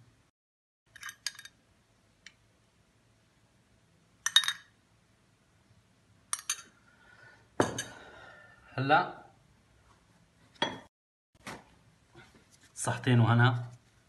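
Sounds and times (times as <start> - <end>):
metal spoon clinking against dish: 6.3 - 6.7.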